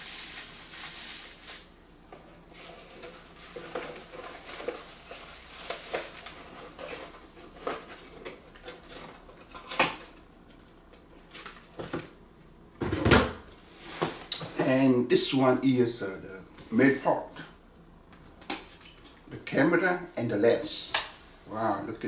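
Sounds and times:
packaging rustling: 0:00.0 - 0:01.7, 0:02.5 - 0:09.3.

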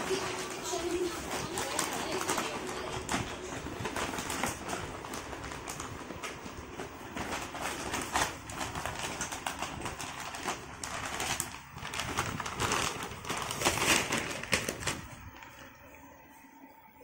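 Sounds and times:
plastic bag crinkling: 0:00.0 - 0:15.9.

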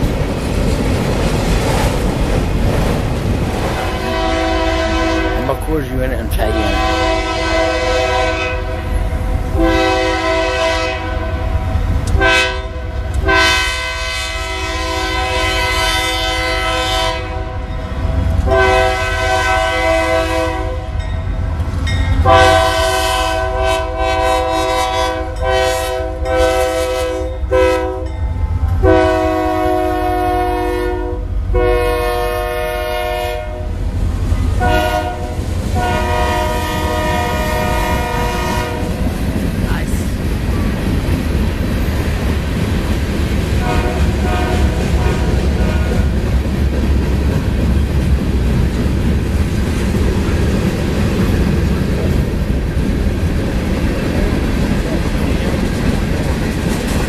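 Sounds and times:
low rumble of moving train: 0:00.0 - 0:57.0
locomotive air horn blasts: 0:03.8 - 0:05.6, 0:06.4 - 0:09.0, 0:09.6 - 0:21.0, 0:22.2 - 0:28.1, 0:28.8 - 0:33.7, 0:34.6 - 0:39.0, 0:43.6 - 0:46.1.

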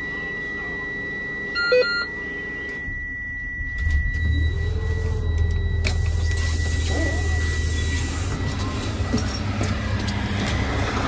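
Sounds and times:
high-pitched electronic tone: 0:00.0 - 0:09.5
bus engine running: 0:03.6 - 0:11.0.

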